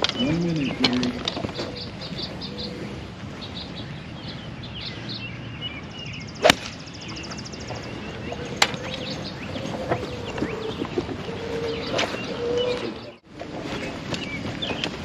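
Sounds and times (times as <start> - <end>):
golf club striking ball: 6.4 - 6.8
golf club swing swish: 6.4 - 6.8.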